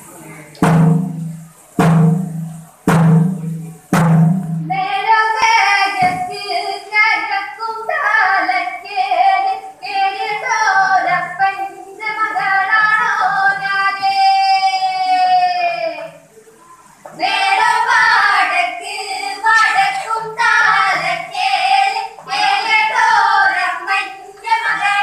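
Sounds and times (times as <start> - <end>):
sharp drum strokes: 0.6 - 6.4
children singing together: 4.7 - 16.0, 17.1 - 25.0.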